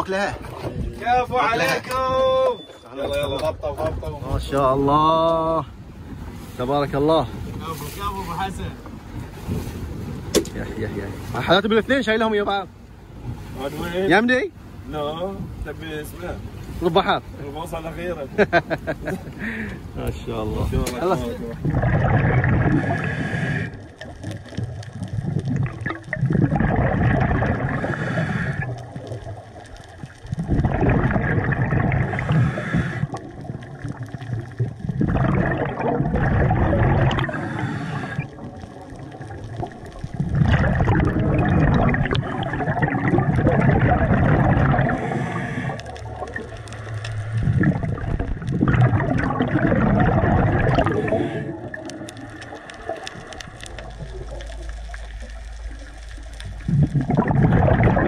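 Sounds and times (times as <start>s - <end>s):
underwater breath bubbling: 21.6s - 58.0s.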